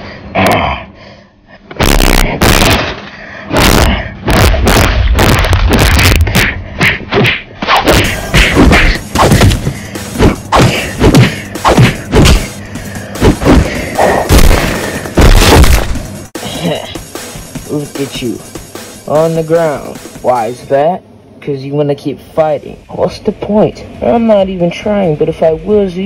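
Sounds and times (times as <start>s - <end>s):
sharp hit whacks: 1.7s - 12.6s, 13.2s - 16.2s
heavy punch thuds: 1.8s - 16.2s.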